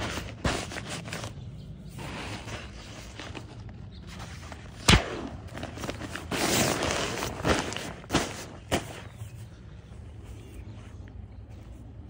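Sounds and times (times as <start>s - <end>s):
nylon fabric rustling: 5.5s - 8.6s.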